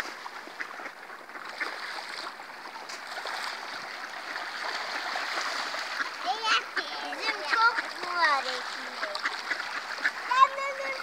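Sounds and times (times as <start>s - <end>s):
faint ticks and splashes: 0.0s - 11.0s
river water flowing: 0.0s - 11.0s.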